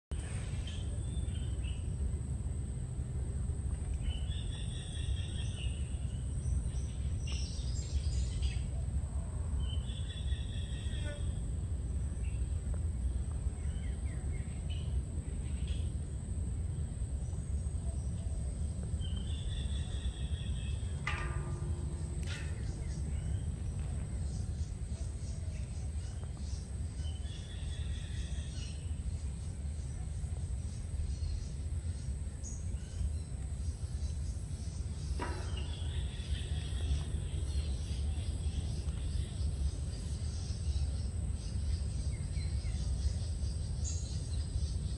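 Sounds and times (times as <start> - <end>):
high insect whine: 9.6 - 44.9
low rumble: 11.4 - 31.4
birds chirping: 16.8 - 44.9.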